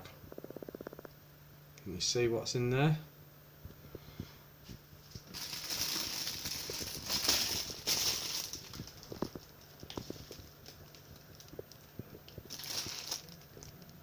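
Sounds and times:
faint low hum: 0:00.0 - 0:14.0
plastic bag crinkling: 0:05.1 - 0:14.0.

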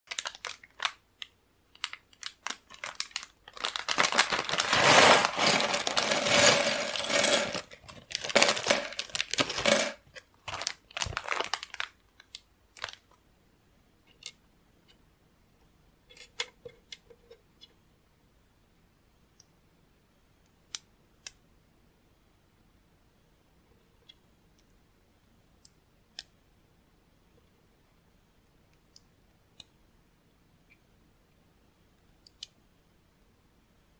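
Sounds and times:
plastic bag crinkling and tearing: 0:00.1 - 0:01.0, 0:01.8 - 0:13.1
plastic pieces clattering out: 0:01.8 - 0:13.0.

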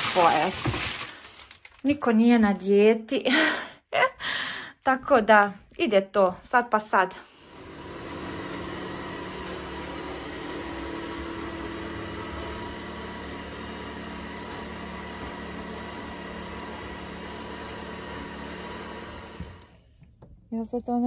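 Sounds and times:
robot vacuum motor whirring: 0:07.5 - 0:19.8.

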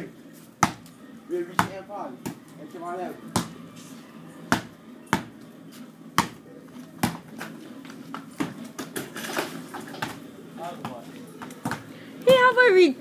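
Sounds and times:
basketball bouncing on concrete: 0:00.6 - 0:00.9, 0:01.5 - 0:02.4, 0:03.3 - 0:03.6, 0:04.5 - 0:05.4, 0:06.2 - 0:06.4, 0:07.0 - 0:07.4, 0:10.8 - 0:12.5.

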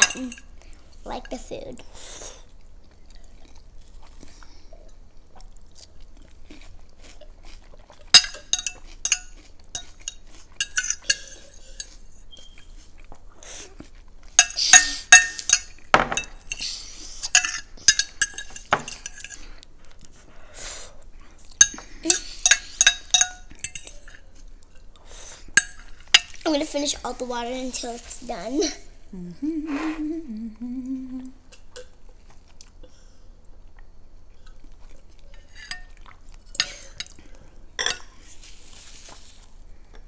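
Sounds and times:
cutlery clinking on glass bowls: 0:00.0 - 0:00.5, 0:08.1 - 0:12.0, 0:14.4 - 0:16.6, 0:17.3 - 0:19.4, 0:21.6 - 0:24.2, 0:25.6 - 0:26.4, 0:37.8 - 0:38.1.

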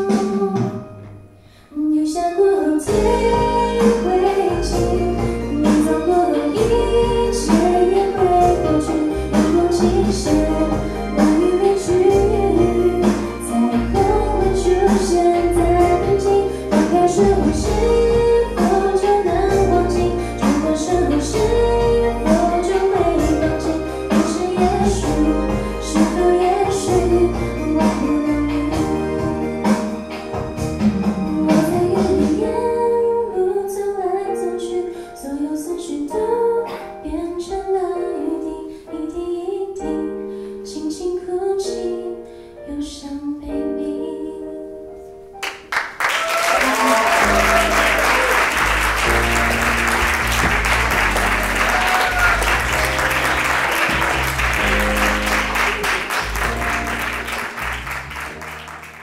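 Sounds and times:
woman singing: 0:00.0 - 0:01.0, 0:01.6 - 0:29.4, 0:31.1 - 0:45.0
audience applause: 0:45.4 - 0:59.0.

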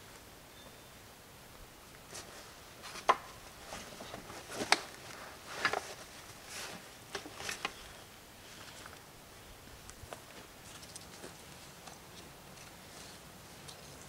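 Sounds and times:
fabric rustling: 0:02.0 - 0:09.0.

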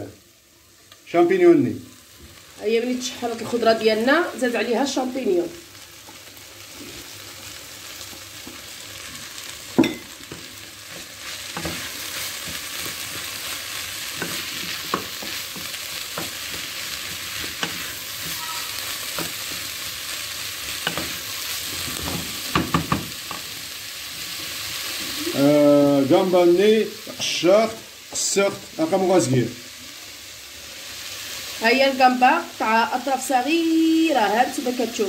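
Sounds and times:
vegetables sizzling in a pot: 0:00.0 - 0:35.0
wooden spoon knocking on pot: 0:22.5 - 0:23.4.

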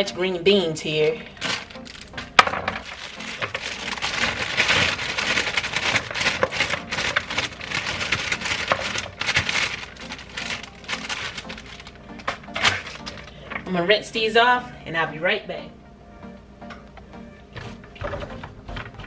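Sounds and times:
plastic bags crinkling: 0:01.3 - 0:13.7.

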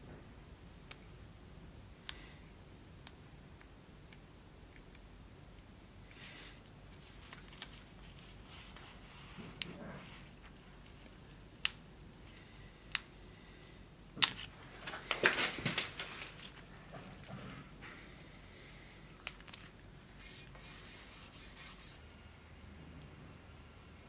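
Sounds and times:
paper crinkling: 0:07.0 - 0:11.4, 0:14.3 - 0:16.8, 0:19.1 - 0:22.0
paper rustling: 0:14.4 - 0:16.8.

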